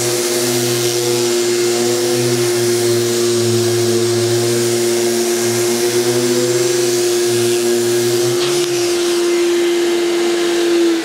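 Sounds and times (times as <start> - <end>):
orbital sander motor hum: 0.0 - 11.0
suction rushing through hose: 0.0 - 11.0.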